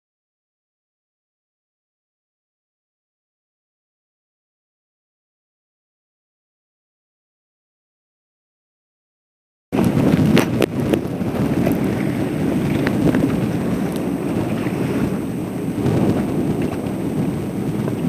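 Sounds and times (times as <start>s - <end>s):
wind buffeting microphone: 9.7s - 18.0s.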